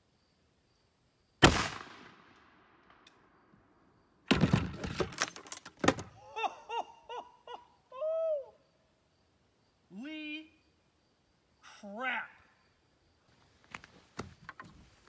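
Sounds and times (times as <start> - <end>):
air rifle shot: 1.4 - 3.0
loud knocks and rattles: 4.3 - 5.2.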